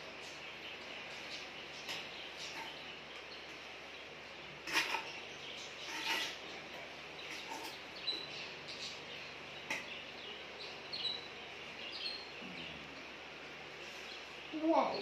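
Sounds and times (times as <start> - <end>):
metal spoon scraping pots: 4.6 - 5.2, 5.8 - 7.9.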